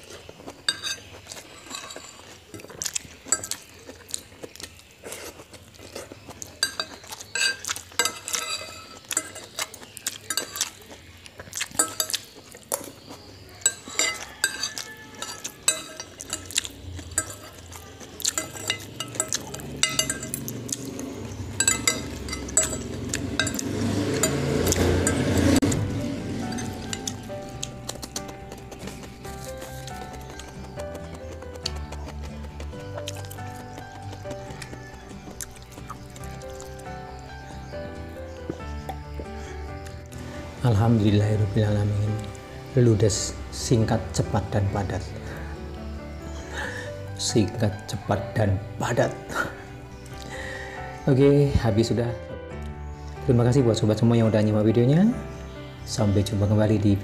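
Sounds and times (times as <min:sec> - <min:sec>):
eating sound: 0:00.0 - 0:40.4
cutlery clinking on ceramic plate: 0:00.6 - 0:03.8, 0:06.5 - 0:11.0, 0:11.6 - 0:13.0, 0:13.6 - 0:20.9, 0:21.5 - 0:25.5.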